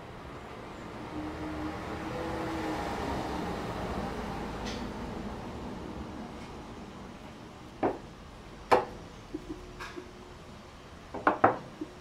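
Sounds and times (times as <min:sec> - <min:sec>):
knocks and clicks of handling gauge: 0:11.1 - 0:12.0.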